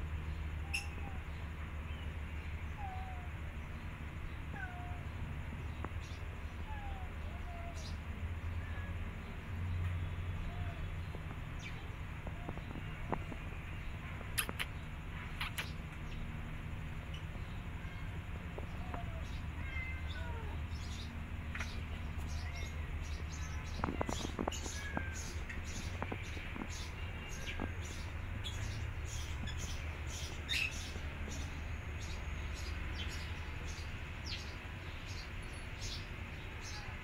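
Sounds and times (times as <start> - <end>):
cats mewing: 2.7 - 3.4, 4.5 - 5.1, 6.6 - 9.3, 17.3 - 28.7
steady low rumble: 10.4 - 19.6
light clicks: 14.3 - 16.0.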